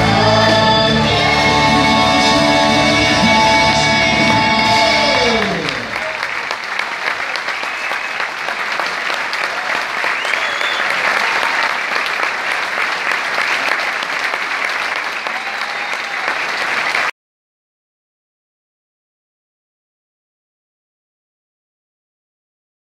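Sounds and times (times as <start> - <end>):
audience applauding: 0.0 - 17.1.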